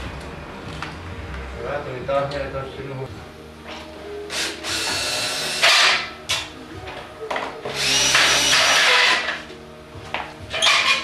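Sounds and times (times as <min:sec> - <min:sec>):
power drill whining: 0:04.3 - 0:06.0, 0:07.7 - 0:09.3.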